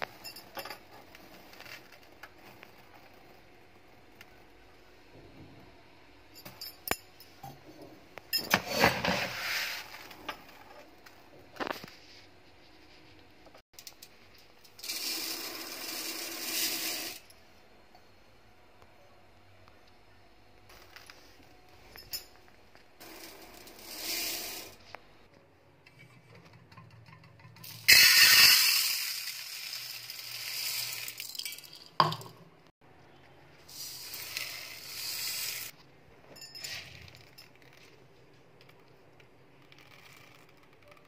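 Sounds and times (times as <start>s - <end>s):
rice grains pouring into steel cup: 14.8s - 17.2s, 23.0s - 24.8s, 27.9s - 31.8s.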